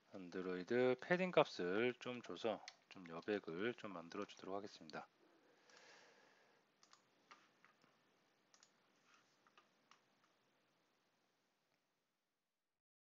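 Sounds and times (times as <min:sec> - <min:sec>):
computer clicks: 0:06.8 - 0:08.8.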